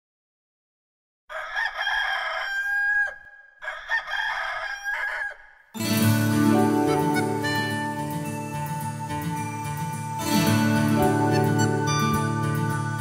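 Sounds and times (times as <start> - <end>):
rooster crowing: 1.3 - 5.6
flute music: 5.8 - 13.0.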